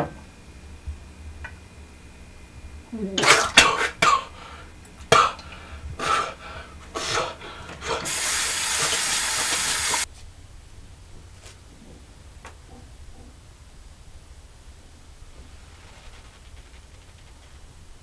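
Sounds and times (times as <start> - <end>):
tap running into sink: 7.0 - 10.0.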